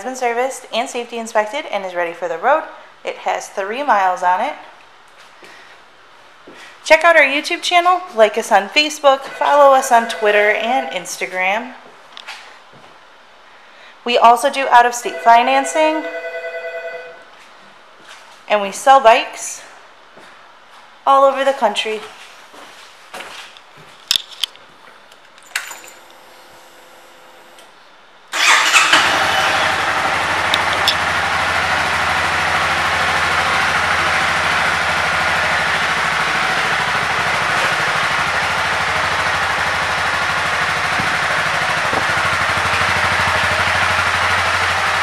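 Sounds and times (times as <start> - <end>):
motorcycle engine starting and idling: 28.3 - 45.0.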